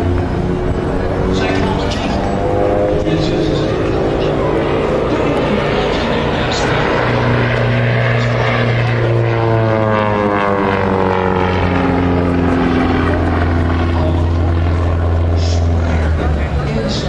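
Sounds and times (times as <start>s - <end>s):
propeller airplane flying past: 0.0s - 17.0s.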